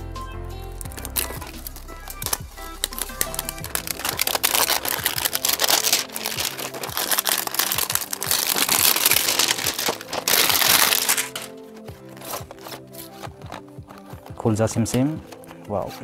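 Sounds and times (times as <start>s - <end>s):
faint background music: 0.0s - 16.0s
plastic wrap crinkling: 0.8s - 16.0s.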